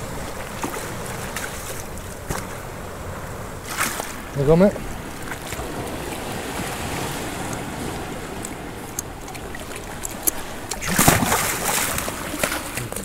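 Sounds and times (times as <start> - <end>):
sea surging against rocks: 0.0 - 13.0
faint ticks: 8.4 - 9.4, 10.0 - 10.8
splash in water: 10.7 - 13.0.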